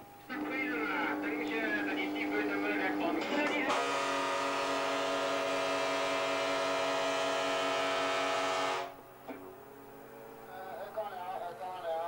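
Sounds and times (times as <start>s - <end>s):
ship's horn blast: 0.3s - 9.0s.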